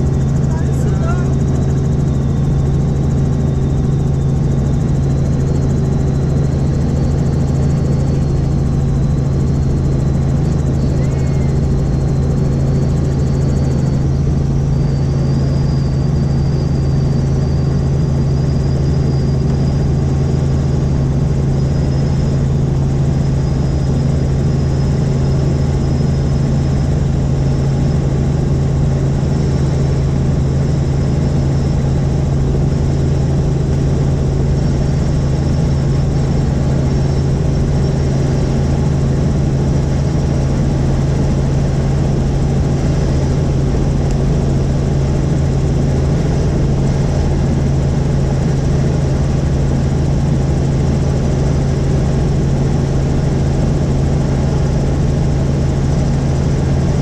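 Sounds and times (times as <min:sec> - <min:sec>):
thin high whine: 0:00.0 - 0:05.0, 0:07.0 - 0:20.6
helicopter rotor and engine drone: 0:00.0 - 0:57.0.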